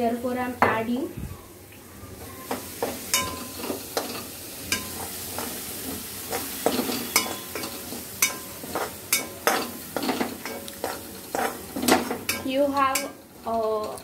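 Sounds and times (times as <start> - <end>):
vegetables sizzling in butter: 1.8 - 14.0
spoon clinking against pan: 2.5 - 5.5, 6.3 - 13.2
spoon scraping metal pan: 2.6 - 13.2.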